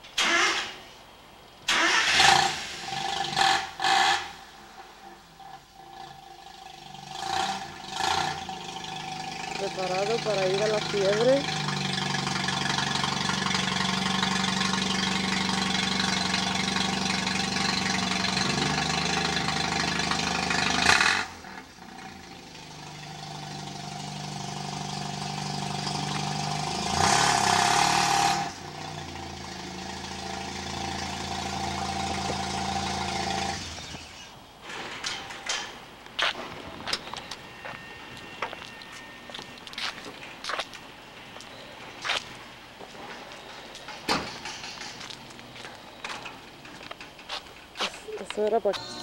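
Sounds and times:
engine revving: 1.7s - 4.5s, 5.4s - 34.4s
rotary engine idling: 5.4s - 26.7s.

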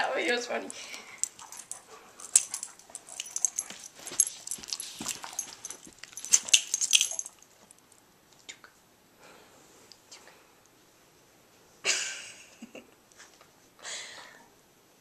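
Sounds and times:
metal collar tags jingling: 0.7s - 8.0s
scuffling and rustling: 1.5s - 7.8s.

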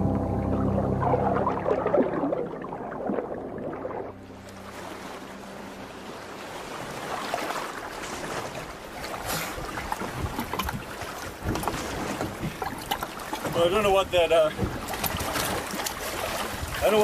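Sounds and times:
background music: 0.0s - 7.2s
sea waves: 0.0s - 17.0s.

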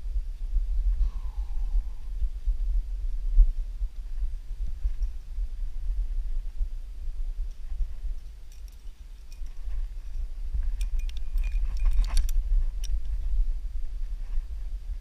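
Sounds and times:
wind rumble on microphone: 0.0s - 15.0s
metal carabiners clinking: 8.2s - 13.0s.

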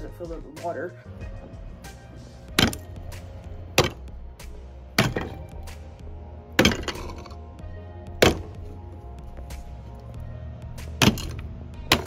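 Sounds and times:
chisel striking ice: 2.6s - 2.8s, 6.6s - 7.3s, 8.2s - 8.6s, 11.0s - 12.0s.

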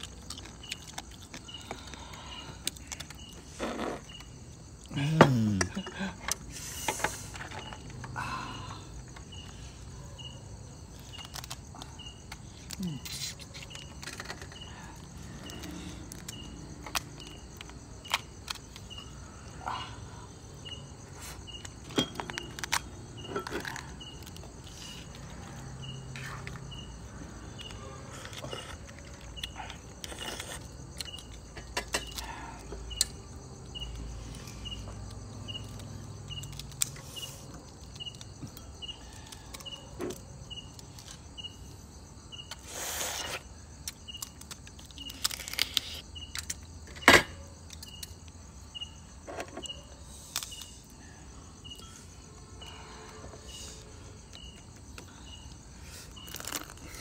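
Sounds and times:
insect chirping: 0.0s - 57.0s
crab shells cracking: 43.8s - 46.6s.

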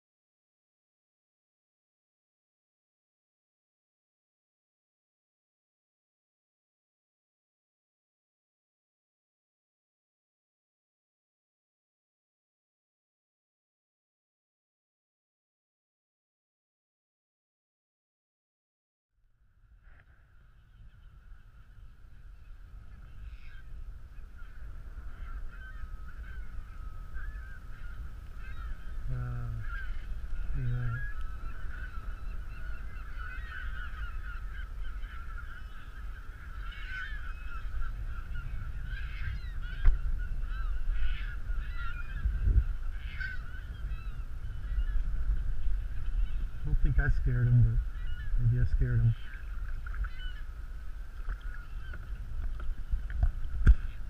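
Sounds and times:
short deep bird calls: 19.8s - 50.6s, 51.2s - 53.0s
flock of seabirds calling: 19.9s - 54.0s.

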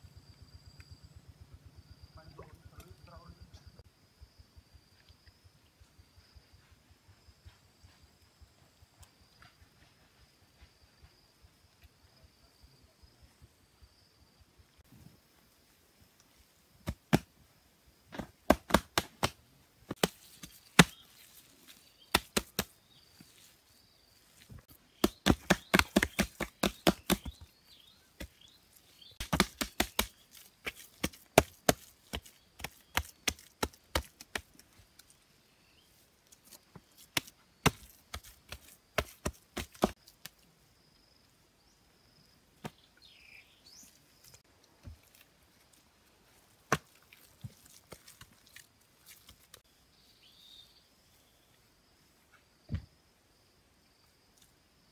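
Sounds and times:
faint insects droning: 0.0s - 54.9s
wet plaster slapped by hand: 16.8s - 17.3s, 18.1s - 21.0s, 22.1s - 22.8s, 25.0s - 27.4s, 29.2s - 34.6s, 37.1s - 40.0s.

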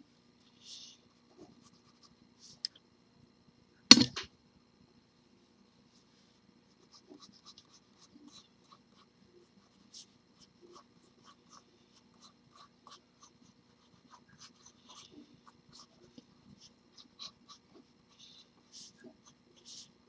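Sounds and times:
pencil scratching on paper: 6.8s - 20.0s.

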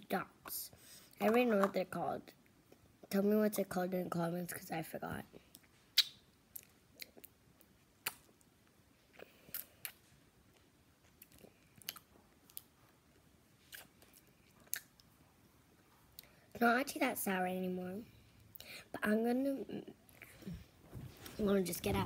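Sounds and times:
wet mouth smacks: 5.5s - 7.3s, 8.0s - 8.4s.

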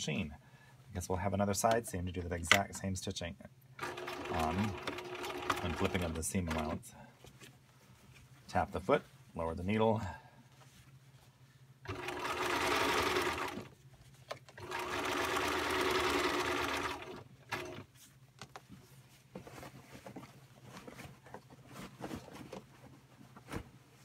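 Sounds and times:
sewing machine stitching: 3.8s - 6.8s, 11.9s - 13.7s, 14.6s - 17.9s.

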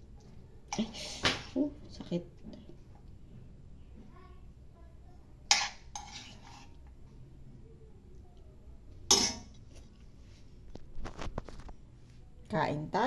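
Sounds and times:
metal spoon clinking on pot: 9.1s - 9.6s.

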